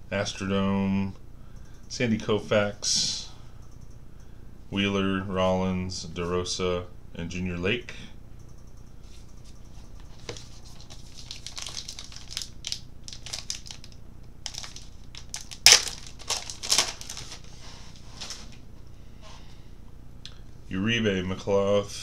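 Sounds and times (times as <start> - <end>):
wrappers tearing and crinkling: 10.4 - 18.6.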